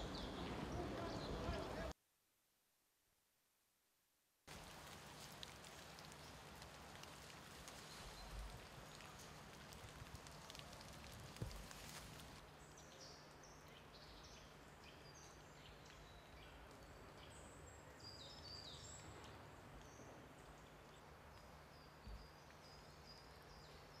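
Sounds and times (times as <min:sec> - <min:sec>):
small birds chirping: 0:00.0 - 0:01.9, 0:05.2 - 0:24.0
small ticks: 0:04.5 - 0:12.4.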